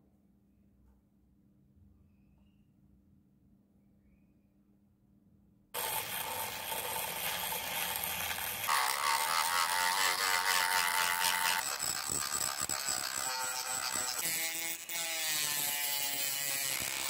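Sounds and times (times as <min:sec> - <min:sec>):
rotary tool grinding metal: 0:05.8 - 0:17.0.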